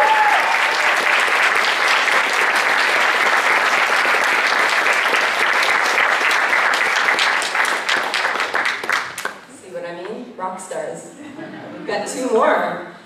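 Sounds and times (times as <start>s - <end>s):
large audience applauding: 0.0s - 9.4s.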